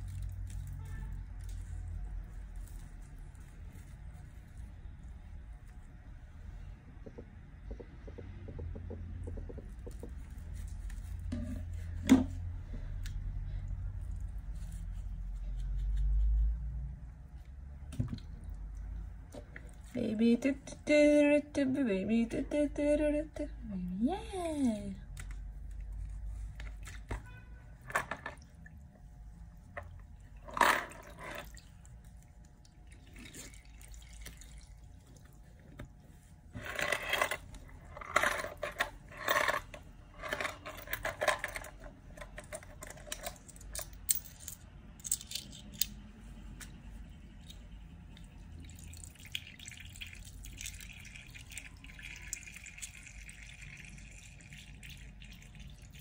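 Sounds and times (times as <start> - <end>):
liquid splashing and dripping: 31.4 - 35.3, 47.4 - 56.0.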